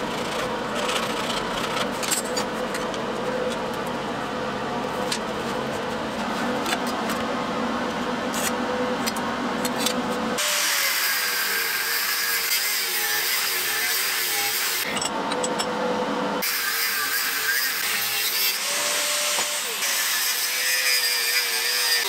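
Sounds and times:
steady hum: 0:00.0 - 0:13.6
angle grinder cutting steel: 0:09.8 - 0:15.1, 0:16.4 - 0:22.0.

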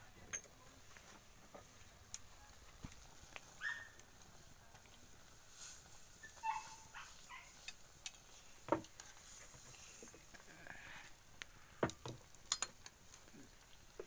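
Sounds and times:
animal whining: 0:06.2 - 0:07.6.

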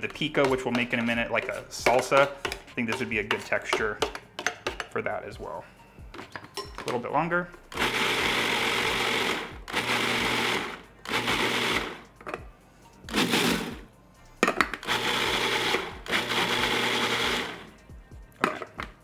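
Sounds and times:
food processor motor whirring: 0:07.7 - 0:12.0, 0:13.1 - 0:13.8, 0:14.8 - 0:17.7.

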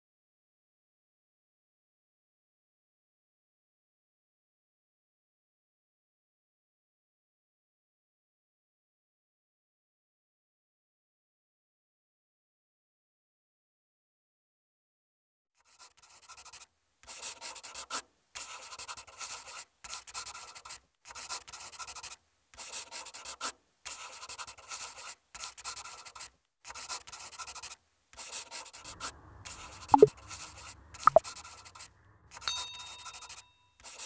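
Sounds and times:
marker scratching on paper: 0:15.6 - 0:32.5, 0:33.1 - 0:34.0.

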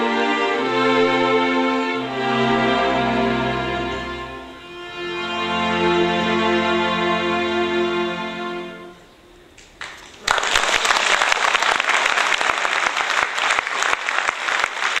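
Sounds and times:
orchestra held chord: 0:00.0 - 0:09.1
audience applause: 0:09.8 - 0:15.0.

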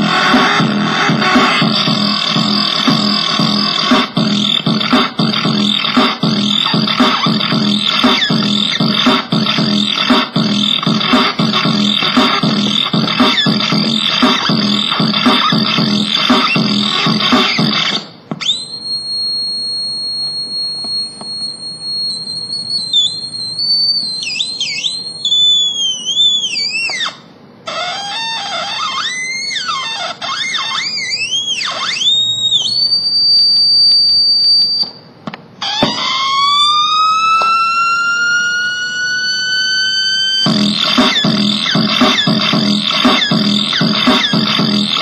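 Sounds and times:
glitchy electronic tones: 0:00.0 - 0:18.1, 0:35.6 - 0:45.0.

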